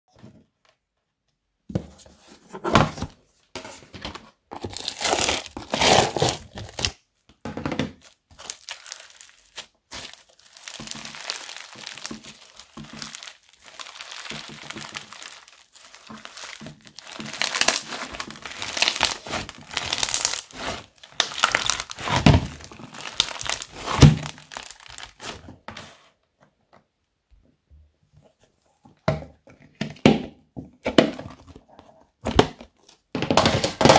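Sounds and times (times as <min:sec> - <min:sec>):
foam beads crackling in slime: 0:04.7 - 0:06.9, 0:08.0 - 0:25.4.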